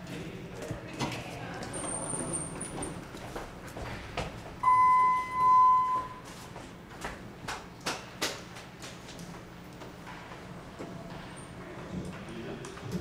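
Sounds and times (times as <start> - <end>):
elevator beep: 4.6 - 6.3.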